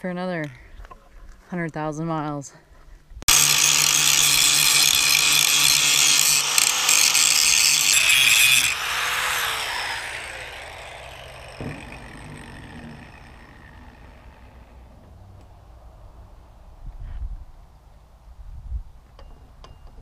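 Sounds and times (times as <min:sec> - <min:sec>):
angle grinder grinding steel: 0:03.3 - 0:15.2.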